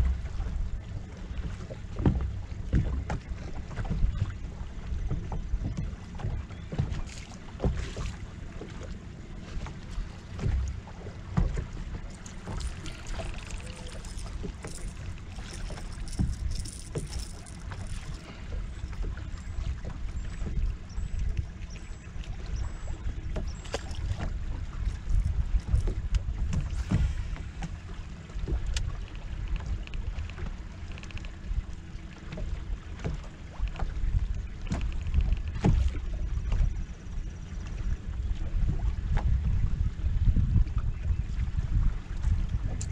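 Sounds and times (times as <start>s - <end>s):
water lapping against boat hull: 0.0s - 42.9s
sharp knocks on boat: 2.0s - 4.0s, 34.7s - 36.0s
wind rumbling on microphone: 9.5s - 31.8s, 32.4s - 42.9s.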